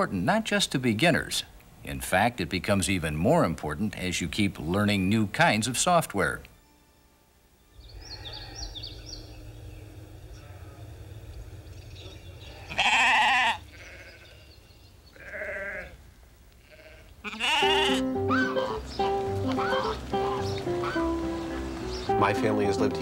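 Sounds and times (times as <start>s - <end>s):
sheep bleating: 12.5s - 14.5s, 15.1s - 16.0s, 16.6s - 21.0s.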